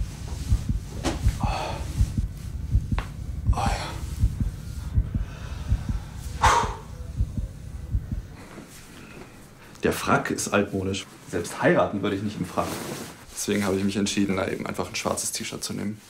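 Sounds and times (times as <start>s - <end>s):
low steady thudding: 0.0s - 9.4s
man breathing forcefully: 0.4s - 9.7s.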